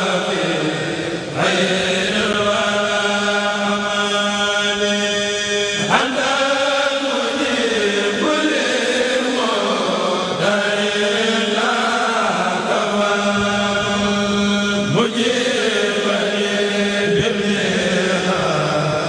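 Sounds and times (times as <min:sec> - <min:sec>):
men chanting through microphones: 0:00.0 - 0:19.0
low held drone tone: 0:12.3 - 0:19.0.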